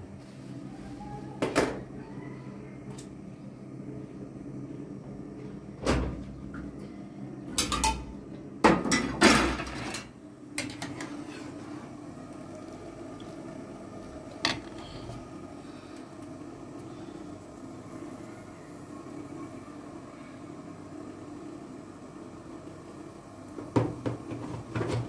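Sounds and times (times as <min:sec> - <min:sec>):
steady low hum: 0:00.0 - 0:24.8
pots and cupboards clattering: 0:08.7 - 0:11.5.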